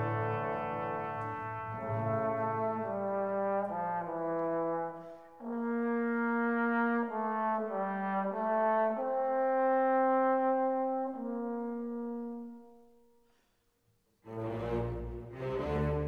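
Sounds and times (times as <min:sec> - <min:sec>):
slow brass melody: 0:00.0 - 0:13.4.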